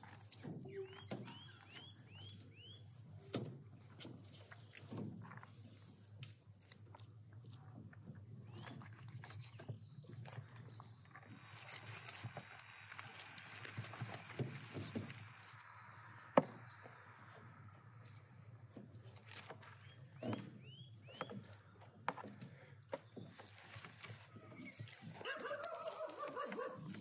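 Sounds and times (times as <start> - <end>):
crackly clicks: 22.8 - 27.0
meat torn apart by hand: 23.4 - 26.3.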